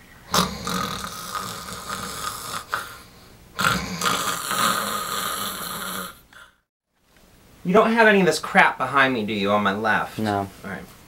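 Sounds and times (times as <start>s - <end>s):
person snoring: 0.3s - 6.6s.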